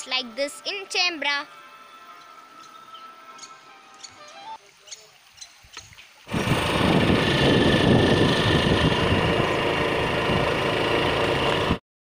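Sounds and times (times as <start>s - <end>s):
wind rushing over microphone: 6.3s - 10.7s
motorcycle engine running: 6.3s - 11.8s.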